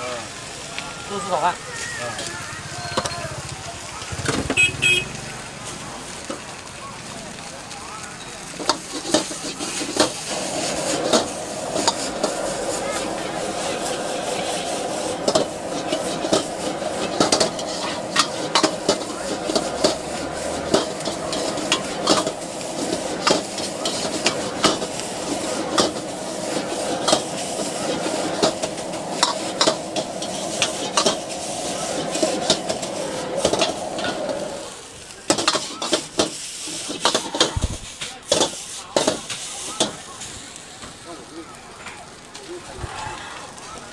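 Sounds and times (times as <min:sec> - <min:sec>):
noodles sizzling in a wok: 0:00.0 - 0:43.9
burner roar: 0:09.0 - 0:34.9.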